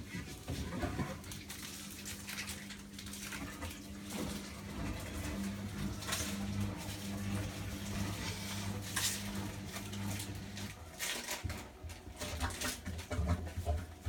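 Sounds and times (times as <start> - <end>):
washing machine motor hum: 0.0 - 14.0.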